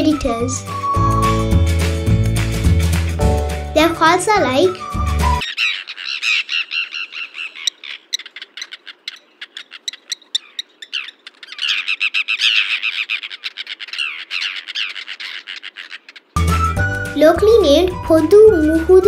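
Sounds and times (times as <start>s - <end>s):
terns calling: 4.0s - 16.8s.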